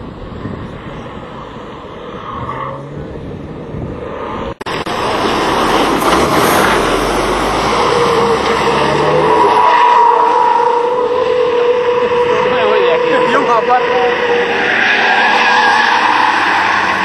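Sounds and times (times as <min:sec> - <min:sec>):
drifting car noise: 0:00.0 - 0:17.0
truck diesel engine under load: 0:00.0 - 0:17.0
tyre squeal: 0:05.7 - 0:17.0.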